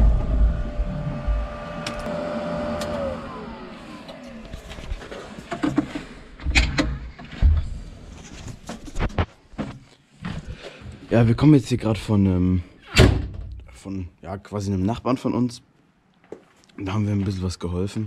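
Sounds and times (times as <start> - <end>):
diesel engine whining: 0.0 - 4.8.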